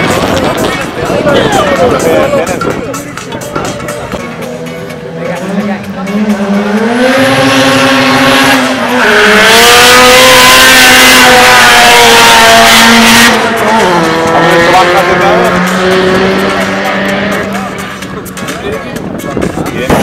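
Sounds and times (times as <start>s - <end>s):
car engine revving and accelerating: 4.2s - 18.6s.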